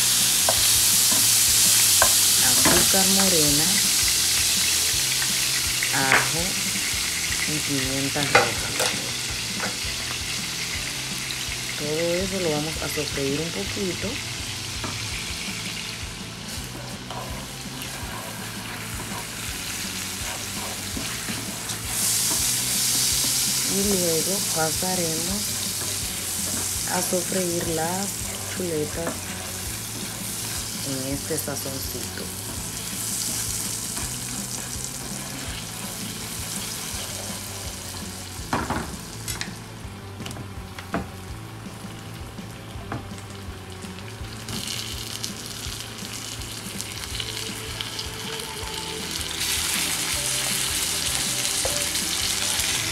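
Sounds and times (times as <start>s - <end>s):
food sizzling in a frying pan: 0.0s - 52.9s
spatula scraping a pan: 16.5s - 23.6s.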